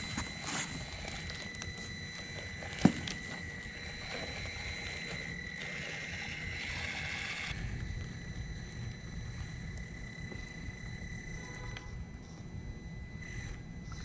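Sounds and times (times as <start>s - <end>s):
toy car motor whining: 0.0s - 8.2s.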